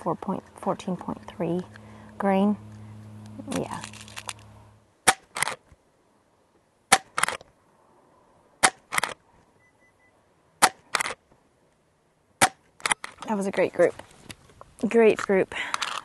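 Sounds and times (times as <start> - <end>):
air rifle shots: 5.0 - 5.6, 6.9 - 7.4, 8.6 - 9.2, 10.6 - 11.2, 12.4 - 13.1.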